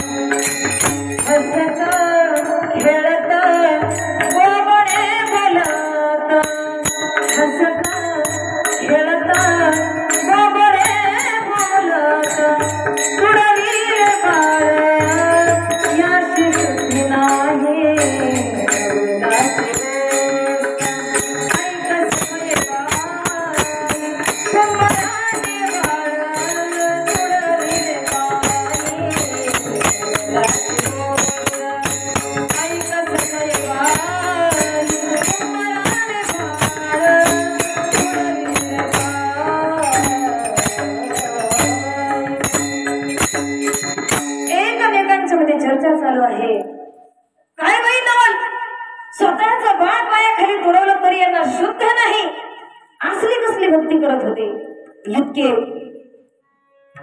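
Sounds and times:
drum beating: 0:00.0 - 0:05.8, 0:06.4 - 0:44.8
hand cymbals jingling: 0:00.0 - 0:45.0
woman singing: 0:00.0 - 0:46.8, 0:47.6 - 0:52.4.

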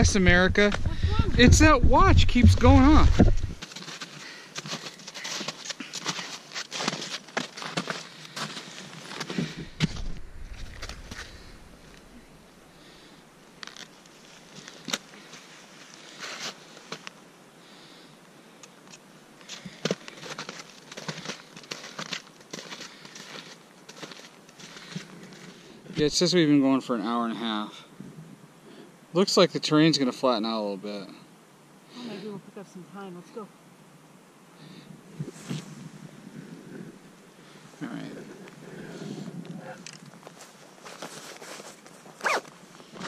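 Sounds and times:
low rumble: 0:00.0 - 0:03.6, 0:09.6 - 0:12.4
snowshoe footsteps crunching snow: 0:02.4 - 0:12.2, 0:19.8 - 0:25.6, 0:40.2 - 0:43.0.

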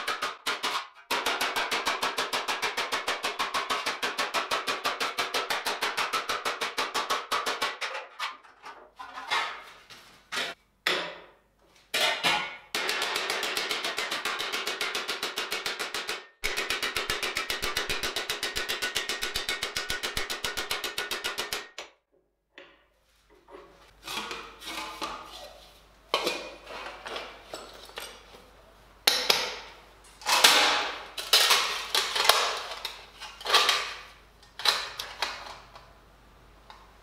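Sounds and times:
metal clanks and scrapes: 0:07.8 - 0:10.6, 0:23.4 - 0:28.5, 0:30.2 - 0:35.8
hammer on steel sheet: 0:12.8 - 0:21.8.

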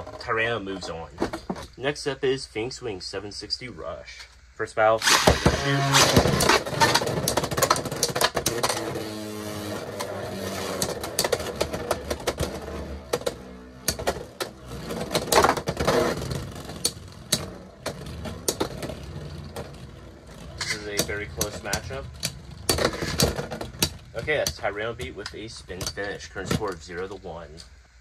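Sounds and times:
spinning tops whirring: 0:05.0 - 0:26.9
tops clacking collisions: 0:09.8 - 0:27.2.

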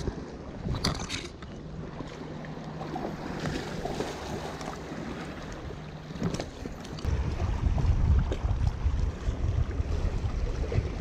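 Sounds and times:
wind on microphone: 0:07.0 - 0:11.0.

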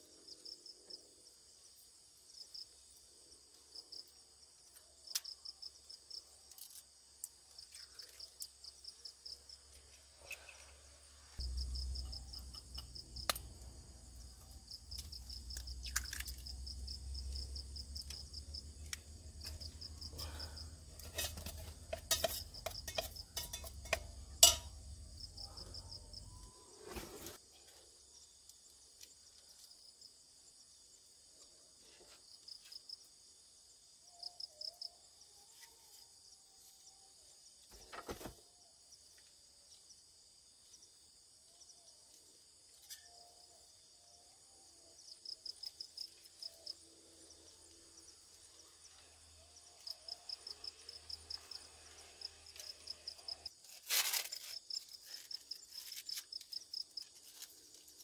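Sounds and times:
insects trilling: 0:33.6 - 0:58.0.

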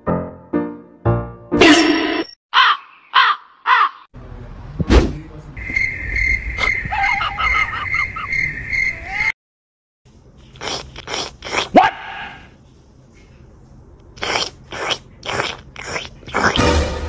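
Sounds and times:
harsh caw-like animal calls: 0:02.5 - 0:04.1.

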